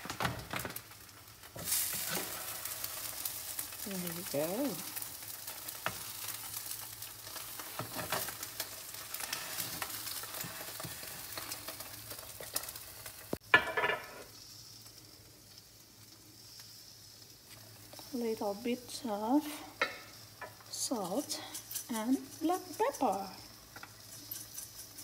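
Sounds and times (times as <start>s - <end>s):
fish sizzling in grill pan: 0.0s - 25.0s.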